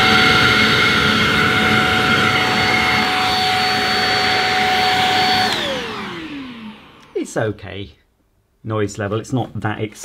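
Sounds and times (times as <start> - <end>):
handheld vacuum motor whine: 0.0 - 7.2.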